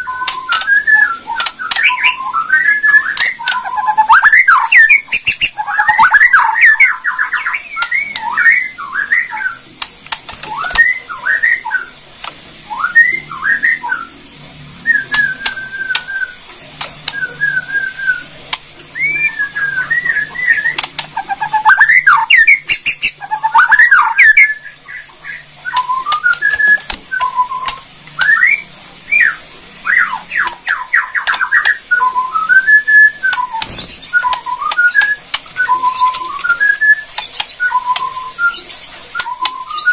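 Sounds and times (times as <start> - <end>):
bird singing whistled phrases: 0.0 - 9.6, 10.4 - 12.0, 12.7 - 14.2, 14.8 - 16.4, 17.1 - 18.3, 18.9 - 39.9
harsh rattling bird notes: 0.0 - 14.2, 14.8 - 39.9.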